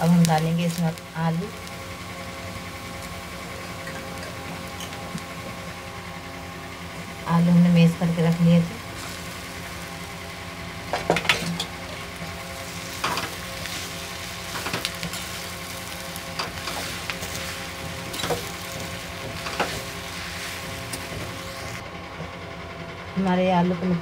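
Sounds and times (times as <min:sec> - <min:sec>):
potatoes sizzling in oil: 0:00.0 - 0:21.8
spatula scraping and knocking pan: 0:10.9 - 0:21.8.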